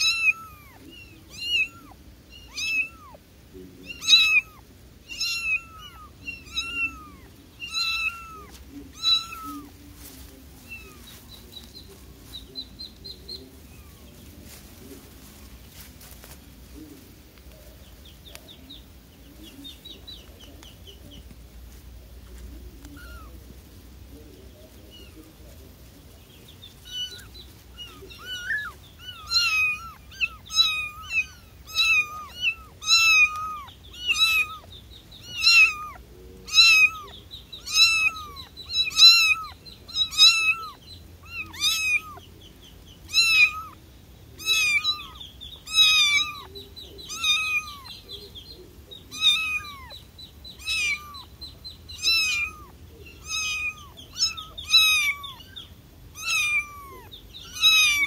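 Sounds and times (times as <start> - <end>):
kitten meowing: 0.0 - 3.2, 3.8 - 9.7, 22.8 - 23.3, 26.8 - 42.2, 43.1 - 43.8, 44.4 - 46.5, 47.1 - 48.0, 49.1 - 50.0, 50.6 - 51.3, 51.9 - 58.0.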